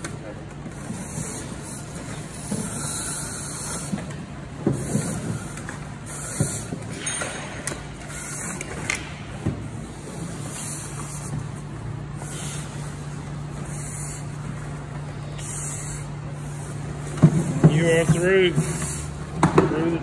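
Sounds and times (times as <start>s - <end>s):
steady low hum: 0.0s - 20.0s
breathing regulator hissing: 1.0s - 4.0s, 12.2s - 14.5s, 15.2s - 16.8s.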